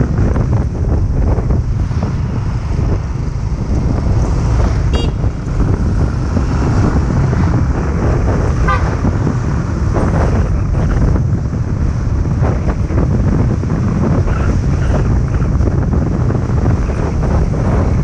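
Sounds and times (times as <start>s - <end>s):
motorbike rumble: 0.0s - 18.0s
wind buffeting microphone: 0.0s - 18.0s
short horn beeps: 4.9s - 5.3s.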